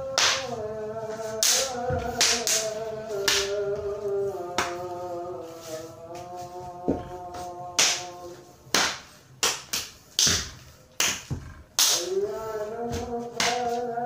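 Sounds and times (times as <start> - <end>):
sharp slapping hits: 0.1 - 0.6, 1.4 - 3.6, 7.8 - 12.2, 13.4 - 13.8.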